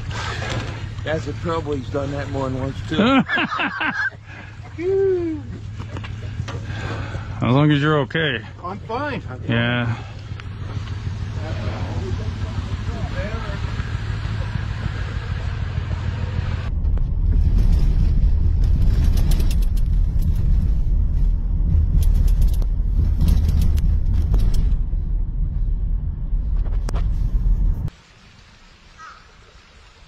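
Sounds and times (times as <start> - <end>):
tyres and engine rumbling: 0.0 - 28.0
faint outdoor sound: 0.0 - 30.0
car rattling over bumps: 5.6 - 27.9.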